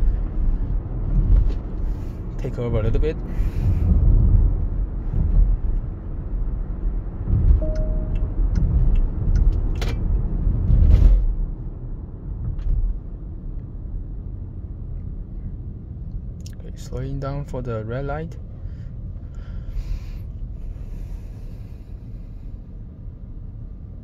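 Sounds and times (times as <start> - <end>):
road and tyre rumble in car: 0.0 - 24.0
short single-pitched beep: 7.6 - 8.4.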